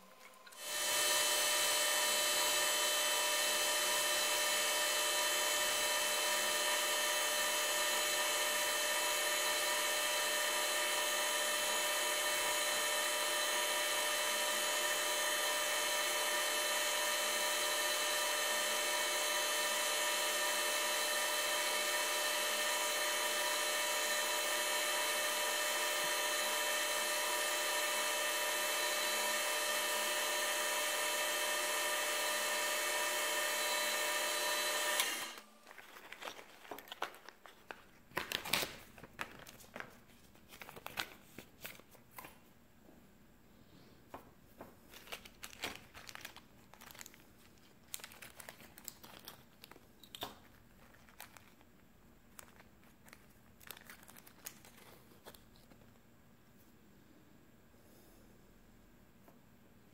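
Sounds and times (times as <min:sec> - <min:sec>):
wood lathe motor whine: 0:00.6 - 0:35.5.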